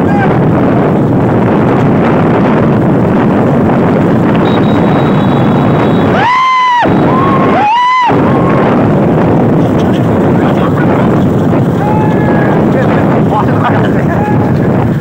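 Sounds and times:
vehicle running: 0.0 - 15.0
wind rushing on microphone: 0.0 - 15.0.

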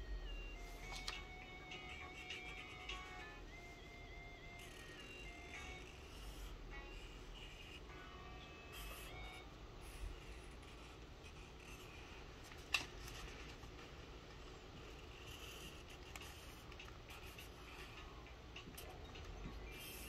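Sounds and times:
marker scratching on paper: 5.6 - 7.8, 8.8 - 12.3, 14.7 - 18.0.

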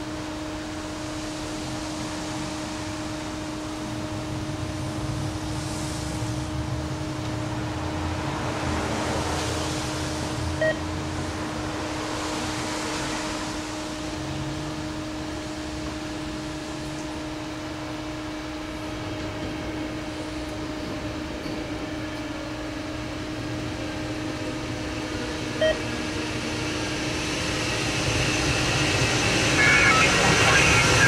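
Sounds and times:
steady low hum: 0.0 - 31.0
short beep: 10.6 - 10.8, 29.6 - 31.0
rushing rumbling noise: 26.4 - 31.0.

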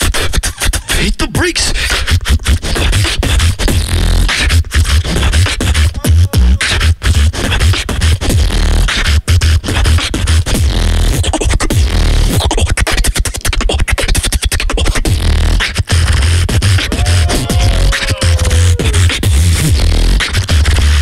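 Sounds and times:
beatboxing into a microphone: 0.0 - 21.0
heavy deep bass: 16.1 - 20.2.

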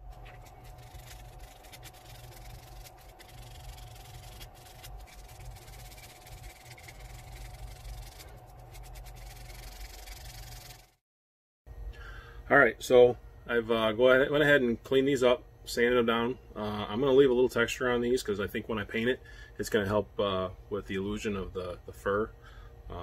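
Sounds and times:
steady background hum: 0.0 - 11.0, 11.7 - 23.0
sandpaper scratching on resin: 0.2 - 11.0.

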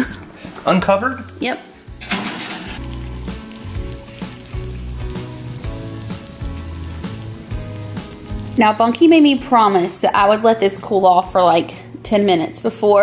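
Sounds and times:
background music with bass line: 1.0 - 11.6
syrup sizzling and bubbling: 1.8 - 10.1.

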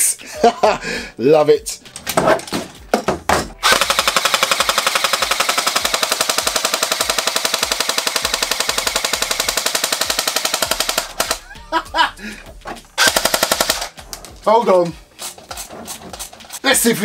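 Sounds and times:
airsoft gun full-auto burst: 3.6 - 11.4, 13.0 - 14.0.

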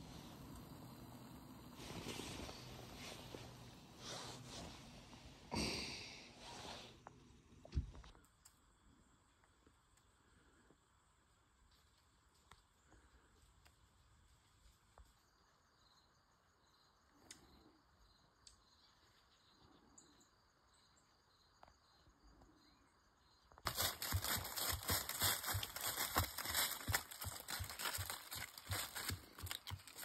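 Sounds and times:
loud crackling rustle: 23.6 - 30.0.

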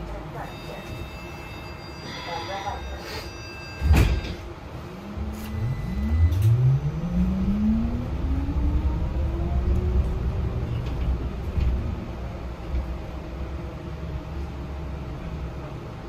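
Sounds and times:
electric bus motor whining: 0.8 - 16.0
low road rumble: 4.1 - 16.0.

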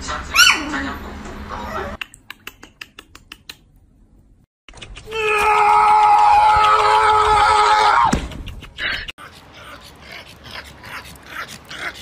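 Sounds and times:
person screaming: 5.1 - 8.1.

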